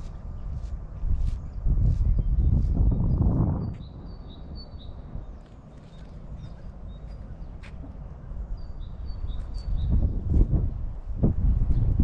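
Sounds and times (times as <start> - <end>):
footsteps on path: 0.0 - 4.0, 5.3 - 8.1
steady low rumble: 0.0 - 12.0
songbird calling: 2.2 - 10.1.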